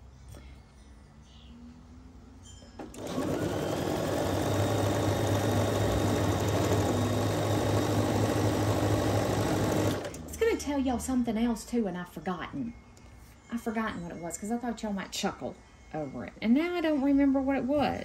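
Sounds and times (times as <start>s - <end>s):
sewing machine stitching: 2.8s - 10.3s.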